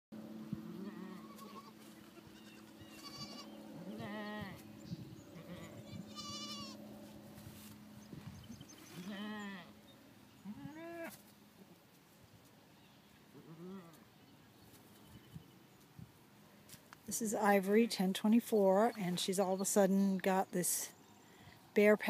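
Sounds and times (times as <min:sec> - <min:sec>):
goats bleating: 0:00.6 - 0:04.6, 0:05.4 - 0:06.8, 0:08.9 - 0:09.7, 0:10.4 - 0:11.2.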